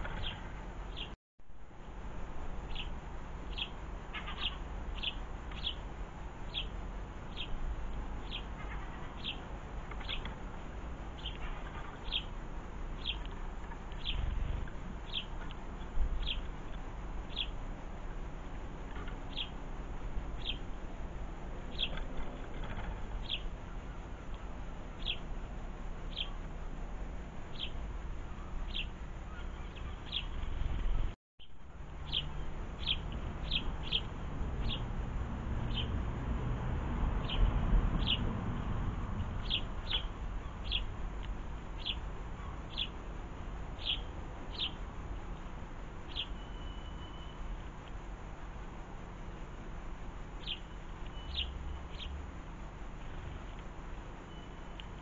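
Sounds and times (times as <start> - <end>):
sparrow chirping: 0.0 - 1.2, 2.7 - 5.8, 6.4 - 7.6, 8.2 - 10.4, 11.2 - 17.6, 18.8 - 19.6, 20.4 - 20.7, 21.6 - 25.3, 26.1 - 26.4, 27.5 - 34.9, 35.6 - 36.0, 37.2 - 38.3, 39.2 - 41.0, 41.7 - 43.1, 43.7 - 47.6, 50.4 - 52.2.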